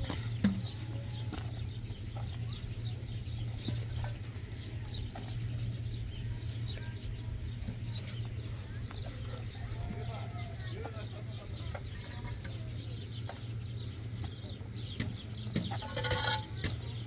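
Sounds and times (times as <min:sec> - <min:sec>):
small birds chirping: 0:00.0 - 0:17.0.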